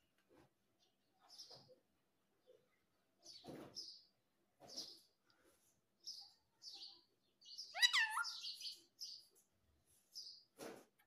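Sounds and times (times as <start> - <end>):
parakeet chirping and whistling: 7.7 - 8.7.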